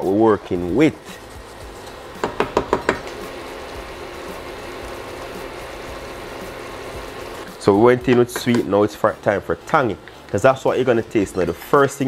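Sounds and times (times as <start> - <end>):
wooden spoon knocking on pan: 2.2 - 3.1.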